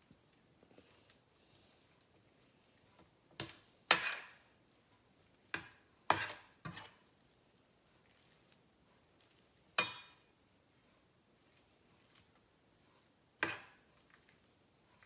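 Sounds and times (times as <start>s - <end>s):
spoon clinking metal bowl: 9.8s - 10.2s.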